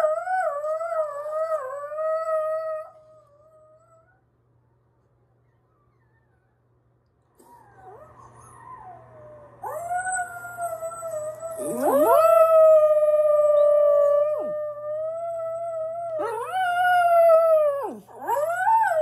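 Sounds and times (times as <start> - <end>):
dog howling through speaker: 7.5 - 19.0.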